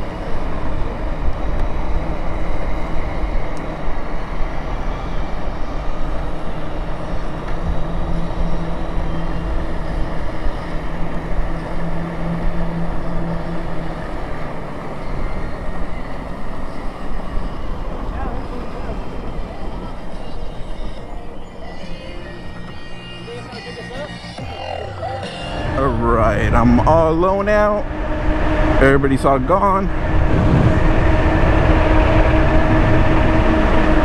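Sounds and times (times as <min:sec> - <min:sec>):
steady low hum: 0:00.0 - 0:34.0
tyres rumbling on road: 0:00.0 - 0:34.0
wind buffeting microphone: 0:25.6 - 0:34.0.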